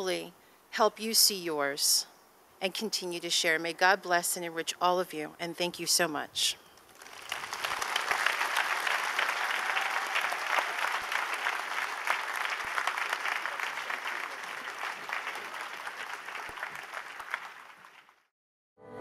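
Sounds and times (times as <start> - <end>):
audience applauding: 6.9 - 18.3.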